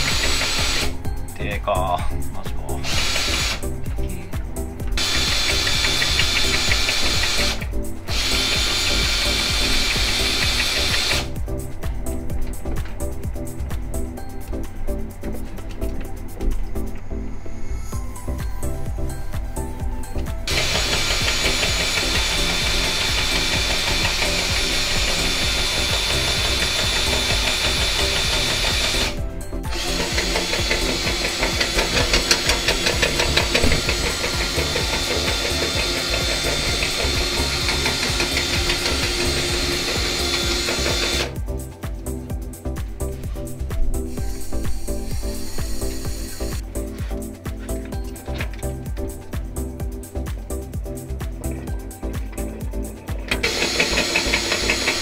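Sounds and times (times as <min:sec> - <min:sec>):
drain-cleaning machine whirring: 0:00.0 - 0:01.0, 0:02.7 - 0:11.4, 0:20.2 - 0:41.6, 0:43.8 - 0:47.0, 0:52.1 - 0:55.0
background music: 0:00.0 - 0:55.0
cable rattling in pipe: 0:20.5 - 0:41.4.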